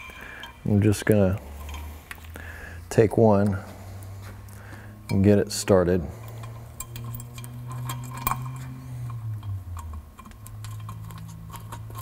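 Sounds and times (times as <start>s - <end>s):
steady low hum: 0.0s - 12.0s
metallic ticks of bolt threading: 6.2s - 12.0s.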